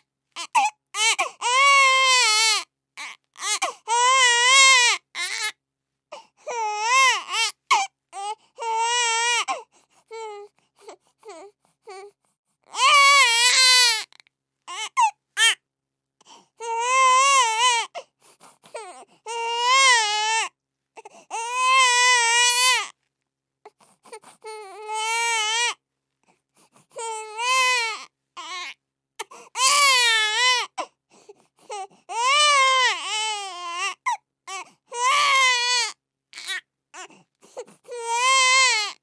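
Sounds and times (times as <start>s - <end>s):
baby crying: 0.4s - 5.5s, 6.4s - 10.5s, 12.7s - 15.6s, 16.6s - 18.0s, 18.7s - 20.5s, 21.3s - 22.9s, 24.1s - 25.8s, 27.0s - 30.9s, 31.7s - 39.0s.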